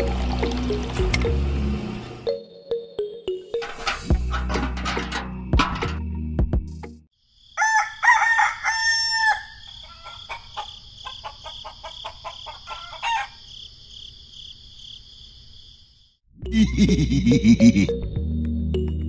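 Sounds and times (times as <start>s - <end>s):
rooster crowing: 7.5s - 13.5s
chicken clucking: 9.7s - 13.4s.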